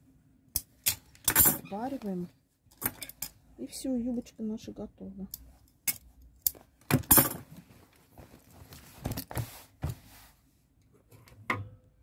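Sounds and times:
fabric rustling: 0:07.4 - 0:10.5.

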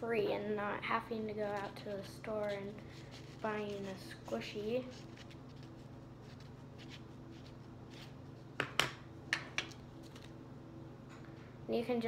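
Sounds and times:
paper rustles: 0:01.6 - 0:08.2.

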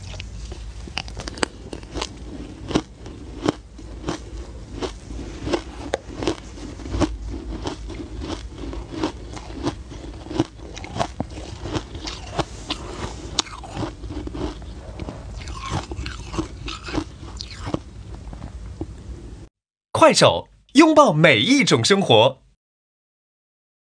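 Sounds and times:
shaved ice being chewed: 0:00.0 - 0:18.4.

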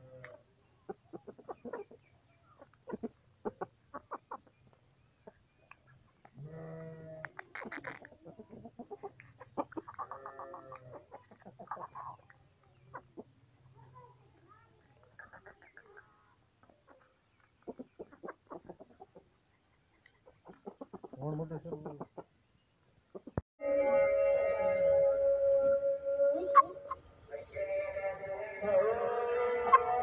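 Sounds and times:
chickens clucking: 0:00.2 - 0:06.4, 0:07.2 - 0:14.0, 0:14.8 - 0:23.4, 0:26.4 - 0:27.6, 0:29.2 - 0:30.0.

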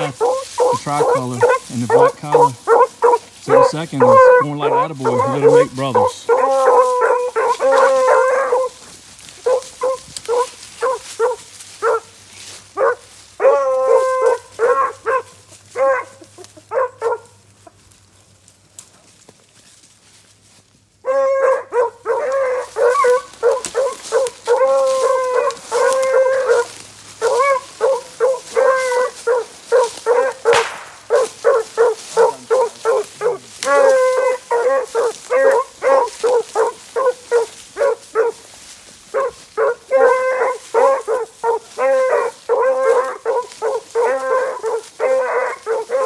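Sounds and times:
hounds baying: 0:00.0 - 0:17.9, 0:21.0 - 0:46.0.

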